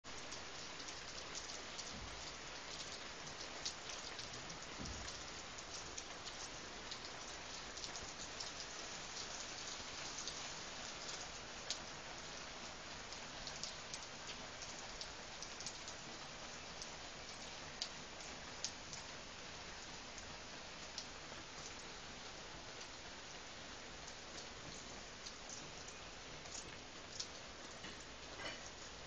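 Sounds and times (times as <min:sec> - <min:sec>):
rain on foliage: 0:00.0 - 0:29.0.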